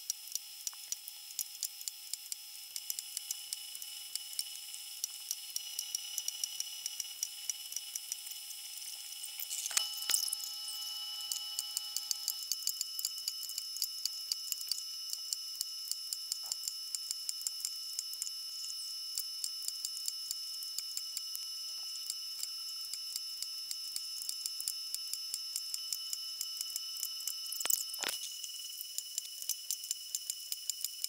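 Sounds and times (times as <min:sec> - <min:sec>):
faint high whine: 0:02.5 - 0:31.0.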